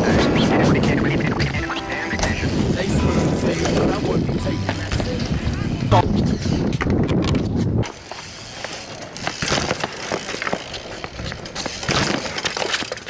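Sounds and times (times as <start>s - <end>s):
low rumble of wind: 2.2s - 7.9s
bike rattling on concrete: 3.4s - 13.0s.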